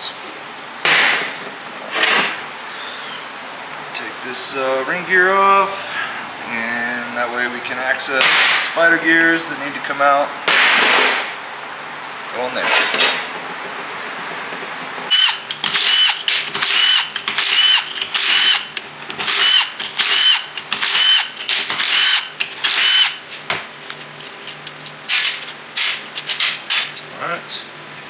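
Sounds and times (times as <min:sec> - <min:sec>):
impact wrench bursts: 0:15.1 - 0:23.2.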